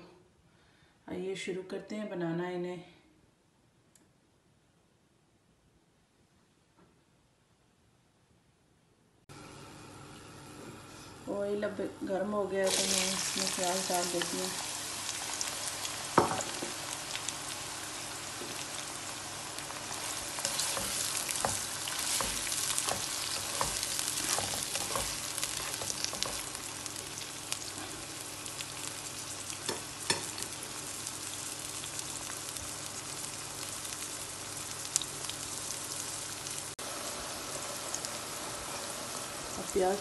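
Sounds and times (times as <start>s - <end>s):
onions sizzling in oil: 12.6s - 40.0s
spatula scraping and tapping pan: 20.4s - 26.5s.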